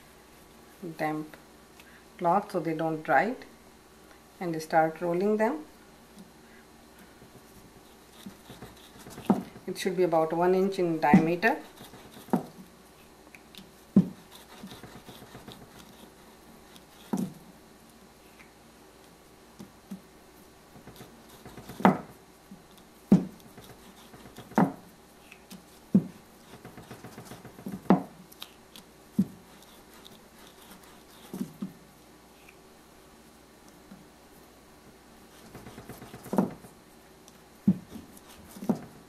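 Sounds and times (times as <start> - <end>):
rolling pin knocking on board: 20.8 - 22.1, 23.1 - 24.8, 26.0 - 28.1.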